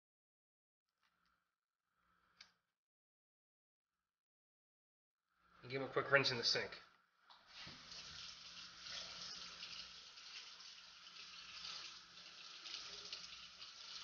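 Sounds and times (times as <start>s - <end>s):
tap water running: 7.3s - 14.0s.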